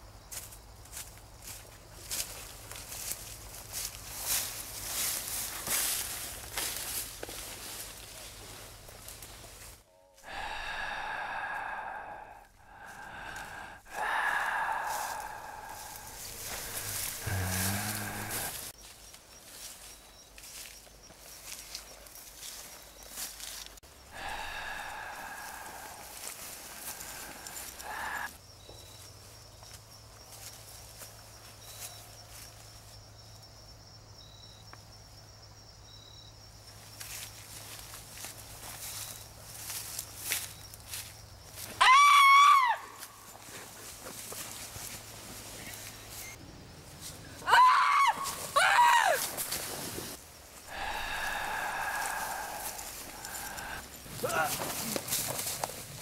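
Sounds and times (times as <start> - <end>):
insects trilling: 0.0 - 56.0
footsteps rustling through grass: 0.3 - 28.3, 36.9 - 41.8, 42.9 - 47.3, 49.2 - 56.0
heavy monster breathing: 10.2 - 18.8, 24.1 - 28.3, 50.6 - 54.5.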